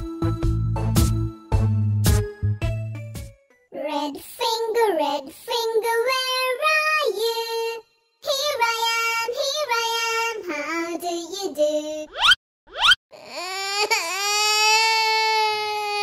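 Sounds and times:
child singing wordless tune: 0:03.7 - 0:12.1.

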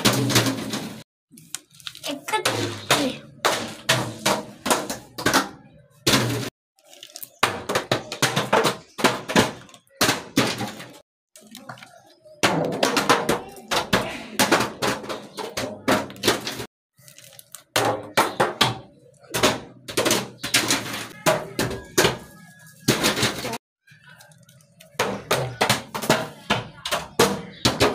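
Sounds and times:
plastic bottle tumbling down stone steps: 0:02.2 - 0:16.7.

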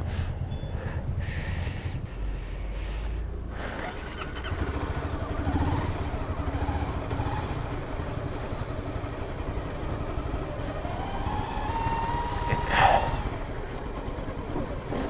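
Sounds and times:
motorcycle engine rumble: 0:00.0 - 0:15.0.

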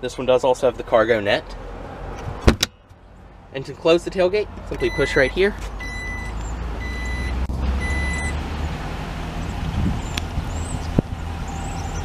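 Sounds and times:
warning chime beeps: 0:04.8 - 0:08.4.

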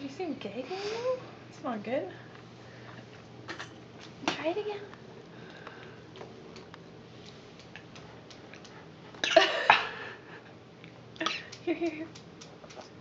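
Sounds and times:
baby gagging and coughing: 0:11.2 - 0:11.5.

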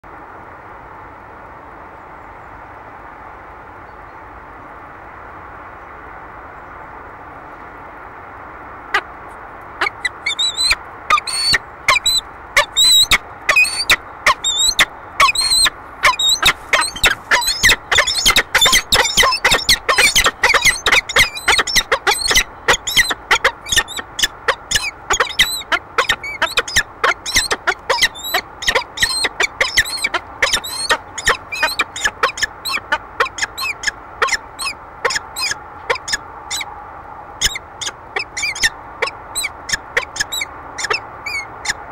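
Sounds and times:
background hiss: 0:00.1 - 0:41.9
falcon harsh squeaky calls: 0:09.8 - 0:36.7, 0:37.4 - 0:41.8.

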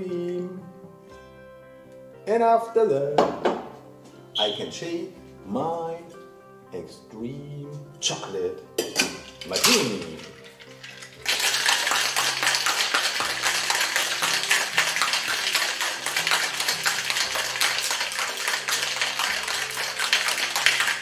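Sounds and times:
faint background music: 0:00.0 - 0:21.0
ice rattling in cocktail shaker: 0:08.8 - 0:21.0.

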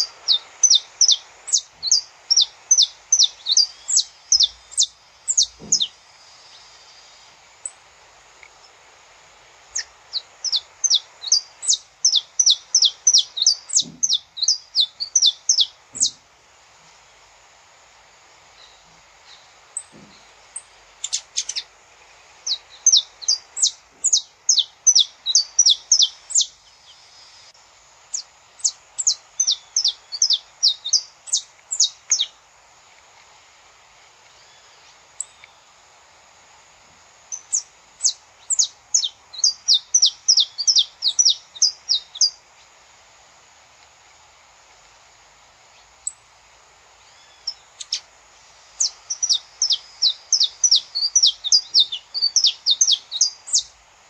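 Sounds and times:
finch chirping: 0:00.0 - 0:06.7, 0:09.7 - 0:16.2, 0:18.6 - 0:21.7, 0:22.3 - 0:26.6, 0:28.1 - 0:32.4, 0:37.3 - 0:42.4, 0:47.2 - 0:48.1, 0:48.8 - 0:53.7
faint steady background noise: 0:00.0 - 0:54.0.

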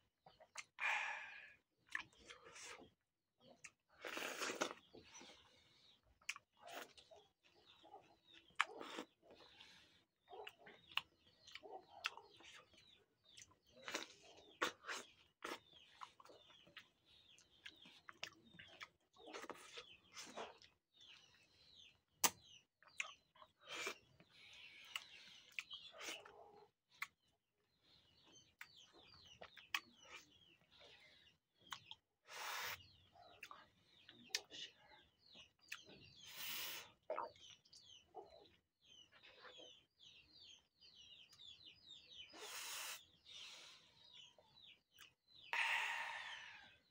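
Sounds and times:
mouth slurping fruit: 0:04.0 - 0:04.9.

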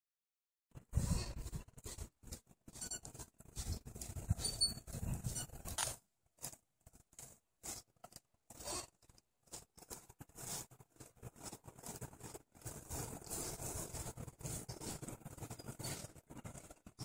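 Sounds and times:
shoe rubbing dog fur: 0:09.5 - 0:16.6.

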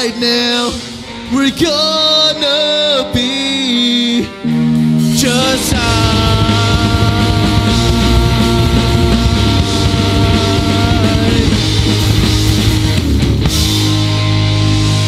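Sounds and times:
rock band playing: 0:00.0 - 0:15.0
drumming: 0:05.1 - 0:15.0.

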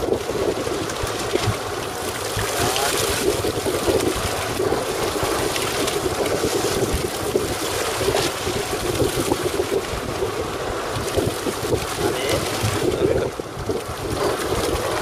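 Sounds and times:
water washing against boat: 0:00.0 - 0:15.0
wind buffeting microphone: 0:00.0 - 0:15.0.

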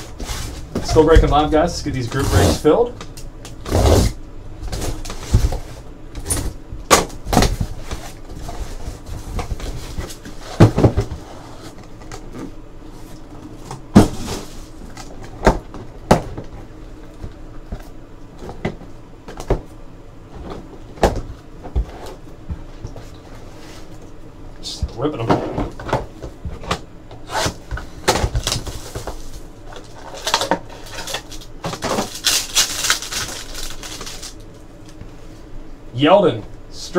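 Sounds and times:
cardboard boxes knocking and scuffing: 0:07.0 - 0:11.4, 0:13.8 - 0:14.7.

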